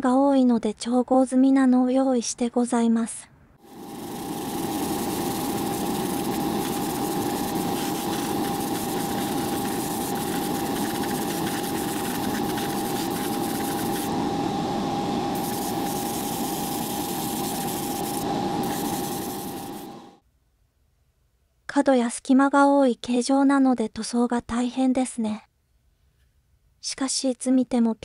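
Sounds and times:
airbrush air hissing: 0:03.6 - 0:20.2
motor humming with whine: 0:03.6 - 0:20.2.

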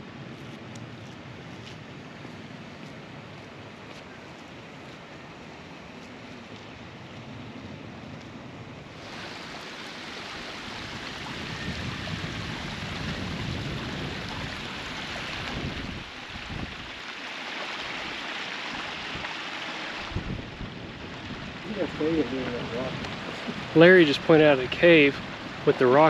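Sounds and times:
rushing water: 0:08.8 - 0:26.0
wind buffeting microphone: 0:10.2 - 0:17.0, 0:20.0 - 0:26.0.

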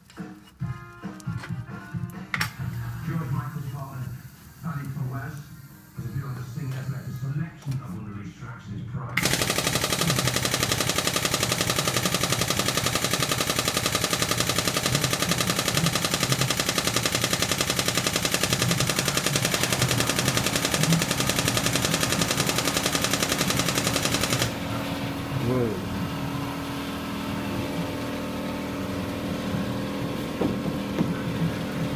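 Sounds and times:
hydraulic pump chattering: 0:09.2 - 0:24.9.

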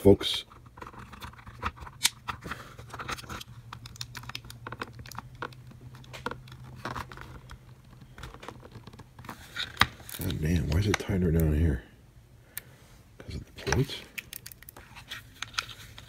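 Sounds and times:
steady low hum: 0:00.0 - 0:16.0
plastic case clicking and creaking: 0:00.5 - 0:11.5.

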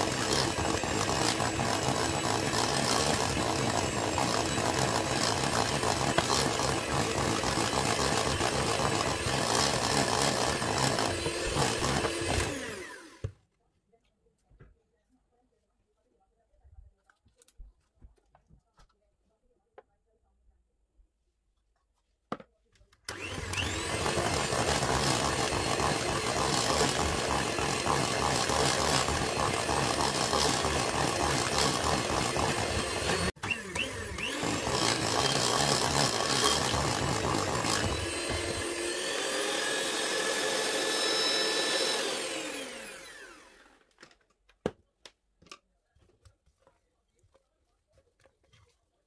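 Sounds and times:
electric hand mixer running: 0:00.0 - 0:13.3, 0:23.1 - 0:43.9.

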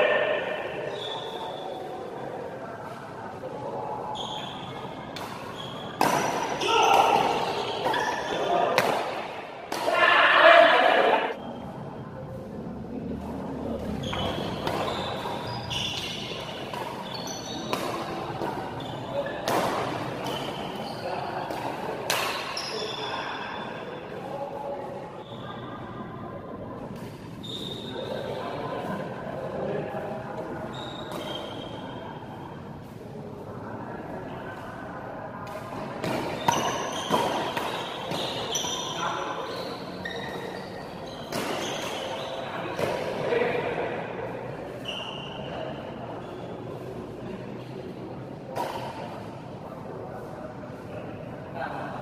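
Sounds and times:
shoes squeaking on court floor: 0:00.8 - 0:02.0, 0:04.1 - 0:08.7, 0:13.8 - 0:23.7, 0:27.4 - 0:28.4, 0:30.6 - 0:32.0, 0:36.0 - 0:43.0, 0:44.8 - 0:45.5
badminton rackets hitting shuttlecock: 0:05.1 - 0:10.0, 0:13.8 - 0:22.6, 0:35.4 - 0:38.8, 0:41.2 - 0:43.1
racket striking shuttlecock: 0:05.2 - 0:08.0, 0:08.7 - 0:10.0.

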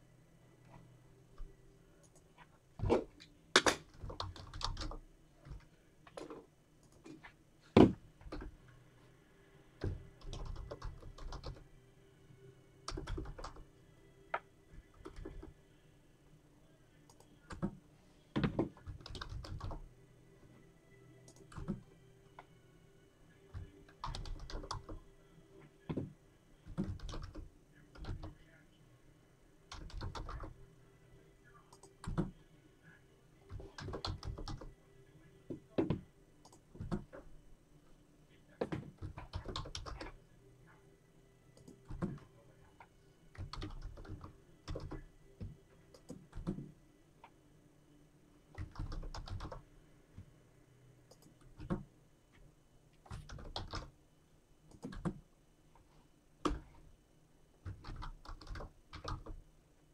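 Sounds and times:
keyboard typing: 0:01.4 - 0:07.3, 0:09.8 - 0:11.6, 0:12.8 - 0:13.7, 0:14.9 - 0:15.5, 0:18.4 - 0:19.9, 0:21.3 - 0:21.9, 0:23.5 - 0:25.0, 0:25.9 - 0:28.4, 0:29.7 - 0:30.6, 0:31.7 - 0:32.3, 0:33.5 - 0:34.7, 0:38.6 - 0:40.2, 0:43.3 - 0:46.7, 0:48.5 - 0:49.6, 0:51.1 - 0:51.9, 0:53.0 - 0:53.9, 0:54.7 - 0:55.2, 0:57.6 - 0:59.4.

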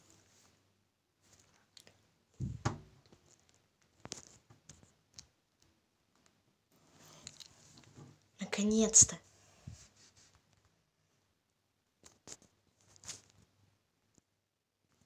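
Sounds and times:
faint clicks and taps: 0:01.3 - 0:06.4.

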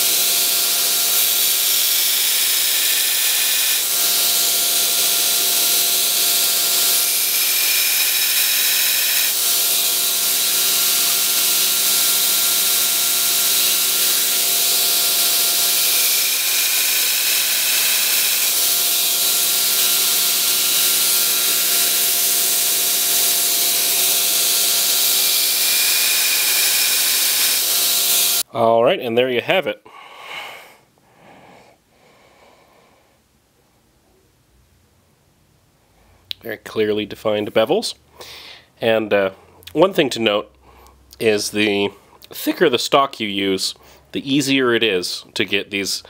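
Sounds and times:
belt grinder grinding steel: 0:00.0 - 0:28.5.

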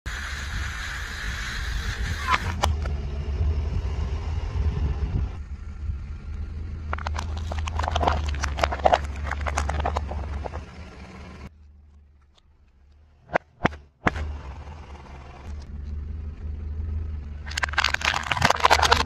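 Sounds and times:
car engine rumble: 0:00.1 - 0:19.0
plastic bowls snapping under tyre: 0:06.9 - 0:10.6, 0:17.5 - 0:19.0.

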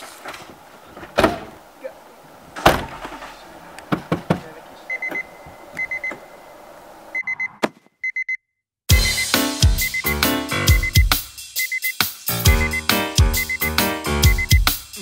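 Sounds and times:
car doors shutting: 0:00.3 - 0:01.7, 0:02.5 - 0:06.3
high electronic beeping: 0:08.9 - 0:14.7.

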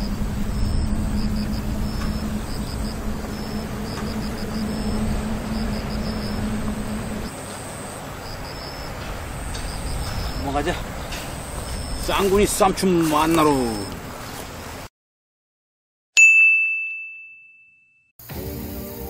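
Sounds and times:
low mechanical hum: 0:00.0 - 0:12.2
rumbling wind-like noise: 0:00.0 - 0:13.3.

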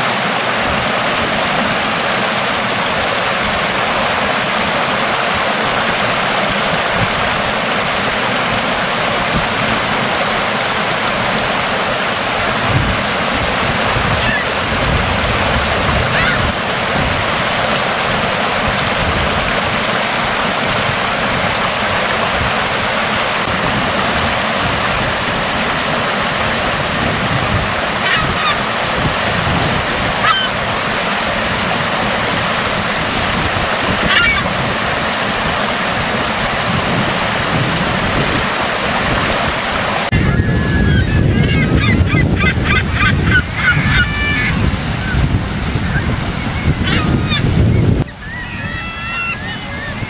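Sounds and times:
surf rush: 0:00.0 - 0:50.0
water running over rocks: 0:00.0 - 0:50.0
gull calls: 0:14.1 - 0:14.6, 0:16.1 - 0:16.5, 0:28.0 - 0:28.6, 0:30.2 - 0:30.6, 0:34.0 - 0:34.5, 0:40.2 - 0:45.2, 0:45.8 - 0:50.0
bird calls: 0:16.1 - 0:16.5, 0:30.2 - 0:30.6, 0:34.1 - 0:34.5, 0:40.8 - 0:45.2, 0:45.8 - 0:50.0.

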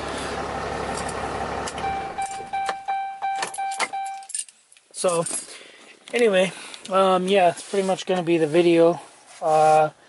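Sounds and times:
diesel engine idling: 0:00.0 - 0:03.4
dashboard warning beeps: 0:01.8 - 0:04.3.

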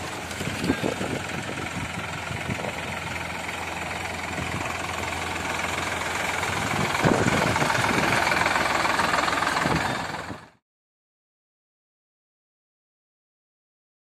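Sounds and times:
tractor diesel engine running: 0:00.0 - 0:10.6.

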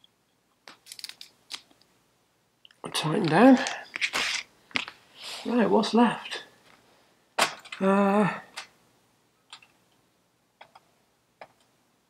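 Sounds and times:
man humming: 0:07.8 - 0:08.6.

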